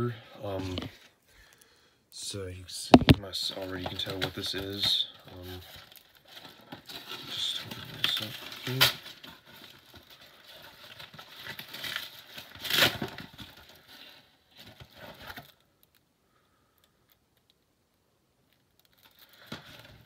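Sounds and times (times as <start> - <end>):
wrapping crinkling: 2.9 - 16.0, 18.5 - 20.0
package being torn open: 5.7 - 13.8.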